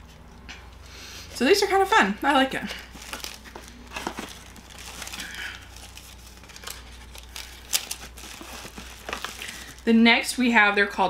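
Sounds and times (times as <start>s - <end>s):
plastic packaging crinkling: 2.2s - 10.0s.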